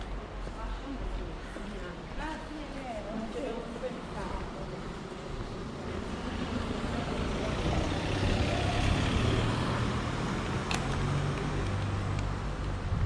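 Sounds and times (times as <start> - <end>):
road noise: 0.0 - 13.0
vehicle engine hum: 4.0 - 13.0.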